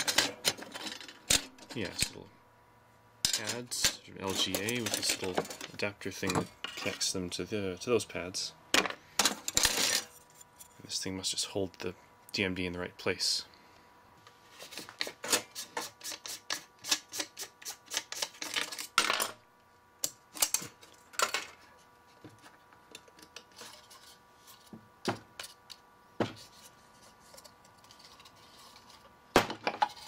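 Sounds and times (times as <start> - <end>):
parts set down on workbench: 8.7 - 10.0, 29.3 - 30.0.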